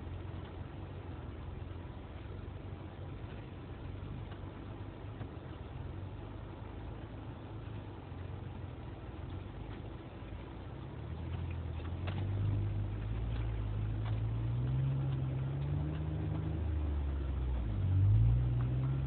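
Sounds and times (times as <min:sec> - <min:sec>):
car engine accelerating: 0:00.0 - 0:19.0
faint clicks: 0:11.2 - 0:17.7.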